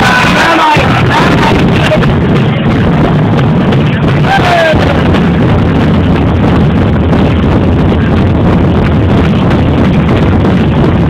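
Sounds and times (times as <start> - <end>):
stadium crowd din: 0.0 - 10.7.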